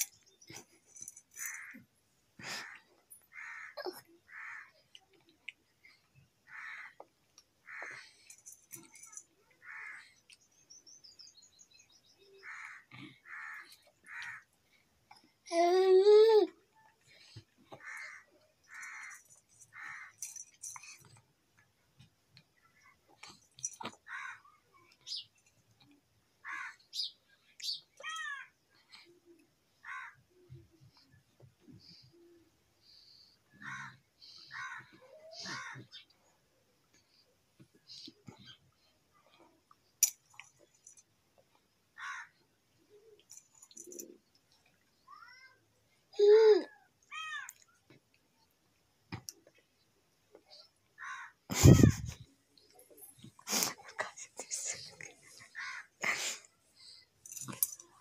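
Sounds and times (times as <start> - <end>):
bird cawing: 51.0 - 51.3.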